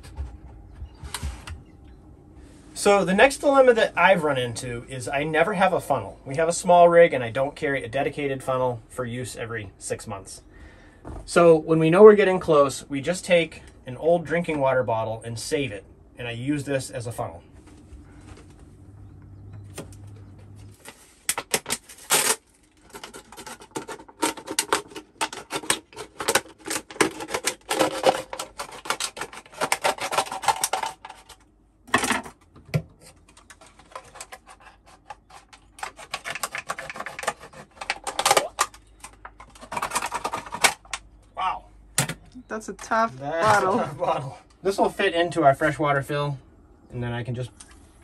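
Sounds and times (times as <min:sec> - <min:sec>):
plastic bottle crinkling: 0:20.7 - 0:31.4.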